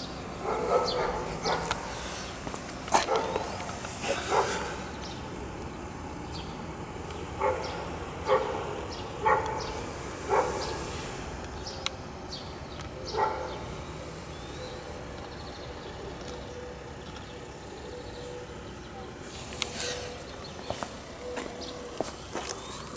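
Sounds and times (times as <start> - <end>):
dog barking: 0.4 - 1.9, 3.0 - 4.9, 7.4 - 10.8, 13.1 - 13.6.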